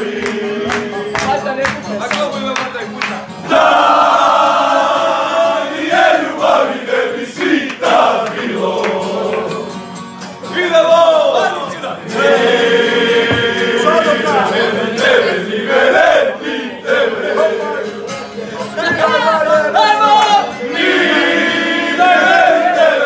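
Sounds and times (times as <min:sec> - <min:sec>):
men singing together loudly: 0:00.0 - 0:01.4, 0:03.4 - 0:09.8, 0:10.4 - 0:18.1, 0:18.7 - 0:23.0
shouts: 0:19.0 - 0:20.6.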